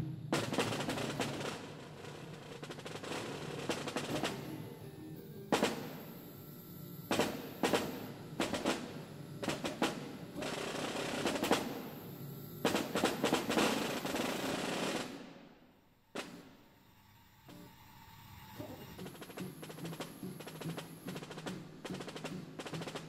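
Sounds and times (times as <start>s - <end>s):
snare drum rolls and strokes: 0.0s - 4.8s, 7.1s - 12.0s, 12.6s - 15.5s, 16.2s - 16.6s, 19.0s - 23.0s.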